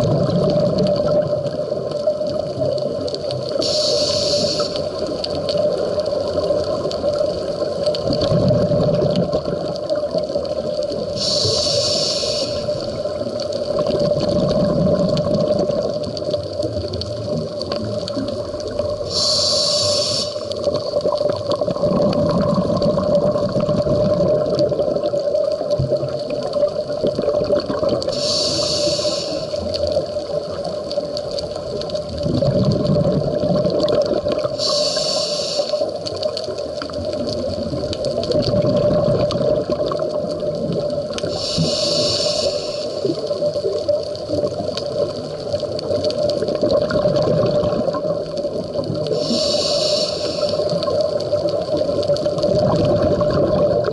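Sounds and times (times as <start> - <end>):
exhaled air bubbling: 0.0 - 53.9
regulator inhale hisses: 3.6 - 5.0, 11.1 - 13.0, 19.0 - 20.6, 28.1 - 29.8, 34.5 - 36.1, 41.2 - 43.3, 49.1 - 51.0
steady hum: 3.6 - 5.0.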